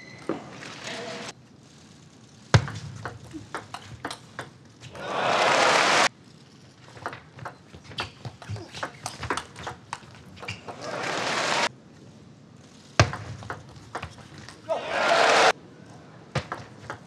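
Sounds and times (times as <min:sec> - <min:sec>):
table tennis ball clicking: 0:02.6 - 0:04.7
crowd applause: 0:04.9 - 0:06.1, 0:10.7 - 0:11.7, 0:14.7 - 0:15.5.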